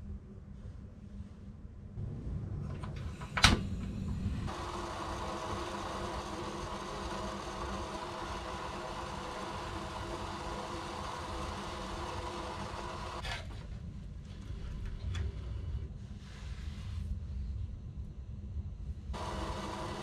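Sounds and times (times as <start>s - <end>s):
gas burner hissing: 2.3s - 13.6s, 19.1s - 20.0s.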